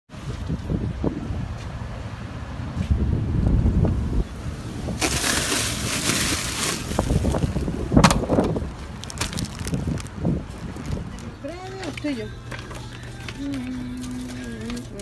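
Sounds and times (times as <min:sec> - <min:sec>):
wind rumbling on microphone: 0:00.1 - 0:11.7
plastic bags crinkling: 0:05.0 - 0:15.0.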